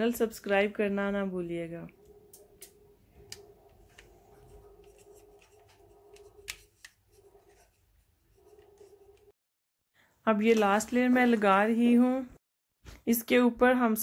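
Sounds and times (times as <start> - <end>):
pastry brush strokes: 3.5 - 9.4.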